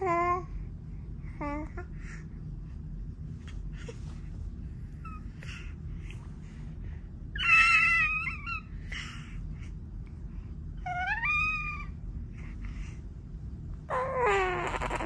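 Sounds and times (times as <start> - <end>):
soft breathy sounds: 0.0 - 15.0
baby squealing: 7.4 - 8.7, 10.9 - 11.9, 13.9 - 15.0.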